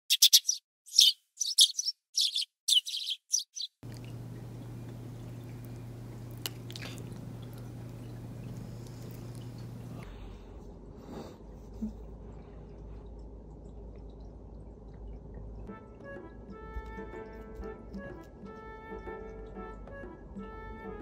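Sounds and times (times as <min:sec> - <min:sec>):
high bird chirps: 0:00.0 - 0:03.8
room tone hum: 0:03.8 - 0:15.6.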